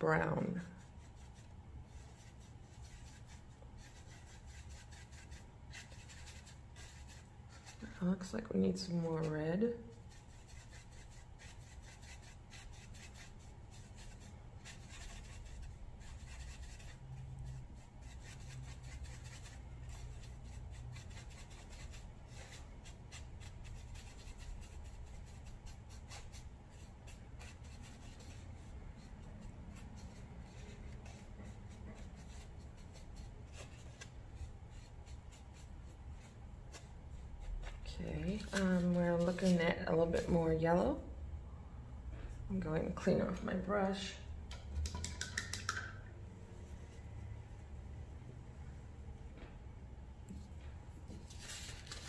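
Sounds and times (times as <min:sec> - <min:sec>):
low steady hum: 0:00.0 - 0:52.0
paintbrush scrubbing on plastic tray: 0:00.8 - 0:40.6.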